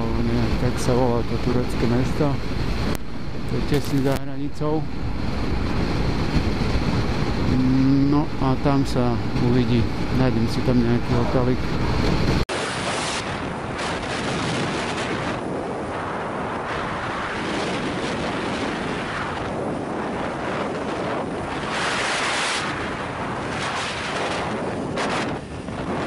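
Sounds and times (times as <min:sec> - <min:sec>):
road noise: 0:00.0 - 0:17.6
wind rushing over microphone: 0:00.0 - 0:26.0.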